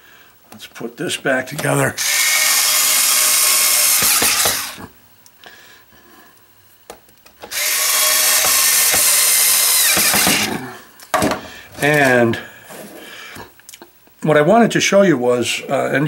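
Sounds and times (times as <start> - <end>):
cordless screwdriver whine: 2.0 - 4.8, 7.5 - 10.5.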